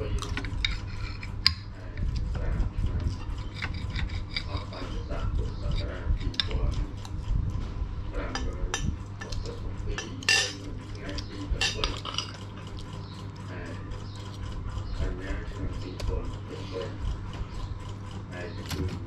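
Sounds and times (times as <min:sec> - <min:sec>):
spoons clinking on plates: 0:10.0 - 0:10.7, 0:11.6 - 0:12.4.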